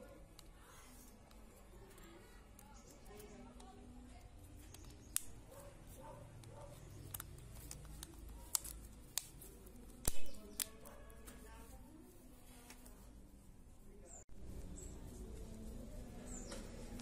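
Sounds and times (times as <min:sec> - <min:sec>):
faint background music: 0:00.0 - 0:17.0
plastic clips snapping: 0:04.6 - 0:05.4, 0:06.4 - 0:10.9.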